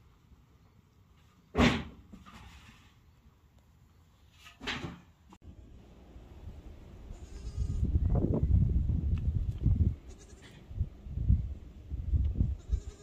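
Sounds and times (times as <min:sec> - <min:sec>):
goat kid bleating: 0:07.1 - 0:07.9, 0:10.1 - 0:10.6, 0:12.5 - 0:13.0.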